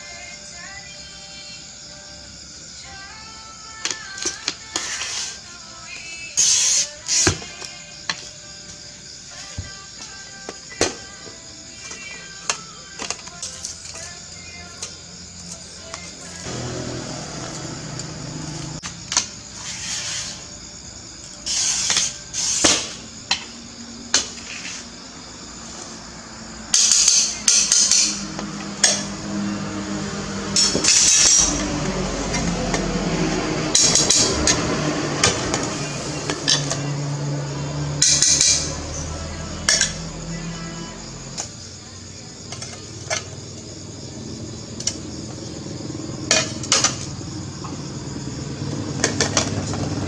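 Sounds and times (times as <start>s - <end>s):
glass cutter scratching: 4.8s - 5.4s, 19.6s - 20.5s.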